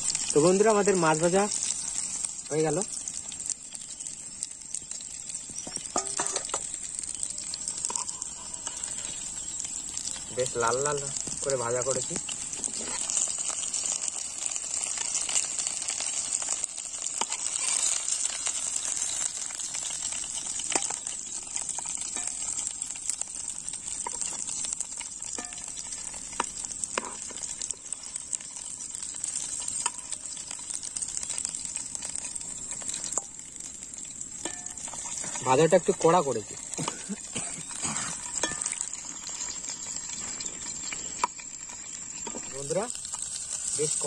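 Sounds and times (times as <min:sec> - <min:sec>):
fish sizzling in hot oil: 0:00.0 - 0:44.0.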